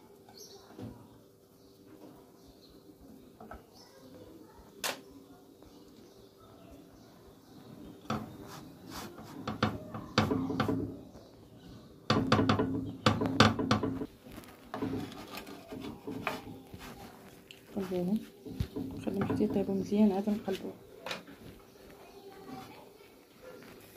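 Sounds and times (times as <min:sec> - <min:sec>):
dough rubbing and scraping on pan: 0:07.6 - 0:11.0, 0:14.0 - 0:20.6
sharp clicks and knocks: 0:08.0 - 0:08.5, 0:09.2 - 0:11.0, 0:12.1 - 0:16.8, 0:18.4 - 0:19.9.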